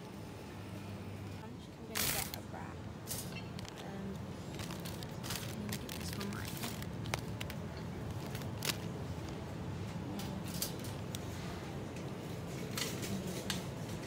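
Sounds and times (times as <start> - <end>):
sandwich wrap crinkling: 1.9 - 2.4, 3.5 - 9.4.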